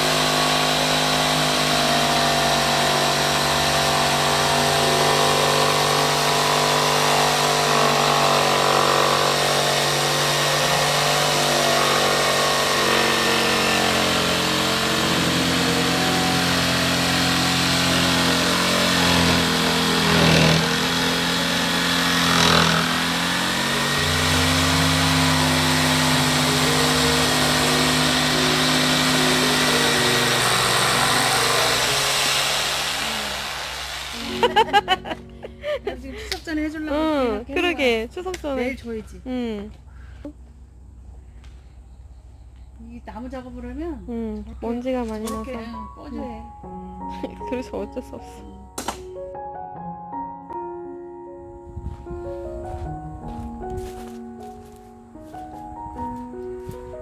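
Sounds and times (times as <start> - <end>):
electric jigsaw cutting wood: 0.0 - 35.2.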